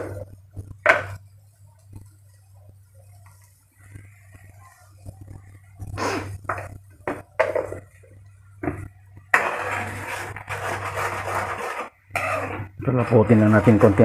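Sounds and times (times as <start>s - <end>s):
sauce boiling: 0.0s - 14.0s
ladle stirring and scraping wok: 8.6s - 14.0s.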